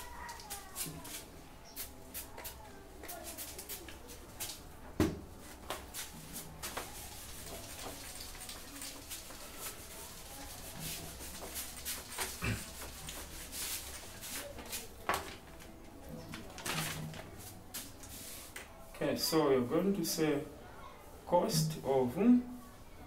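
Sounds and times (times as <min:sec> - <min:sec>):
rubbing strokes on whiteboard: 0:08.8 - 0:15.0.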